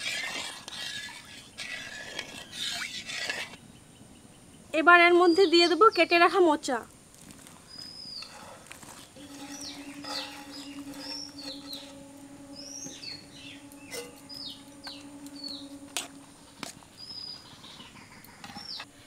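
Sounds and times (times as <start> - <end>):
small birds chirping: 1.0 - 6.4, 7.6 - 18.9
low hum: 9.1 - 19.0.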